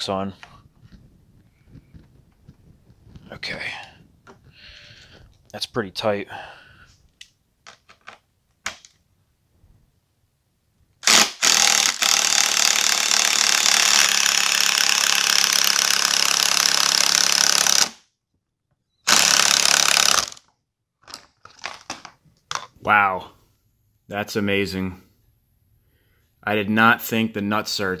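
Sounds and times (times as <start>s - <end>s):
impact driver spinning bolt: 11.0s - 18.0s, 19.1s - 20.5s.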